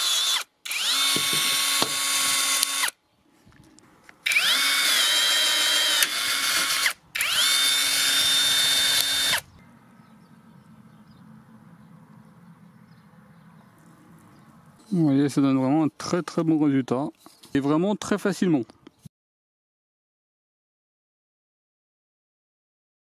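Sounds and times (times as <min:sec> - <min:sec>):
rivet gun motor whine: 0:00.0 - 0:03.0, 0:04.2 - 0:09.5.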